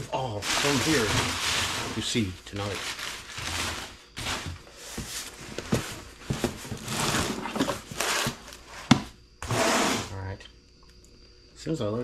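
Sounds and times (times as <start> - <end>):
packing paper rustling and crumpling: 0.0 - 8.6.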